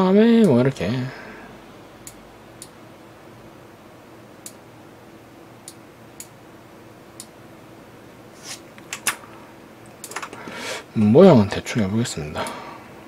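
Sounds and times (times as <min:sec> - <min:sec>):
short rustle: 0:08.3 - 0:08.7.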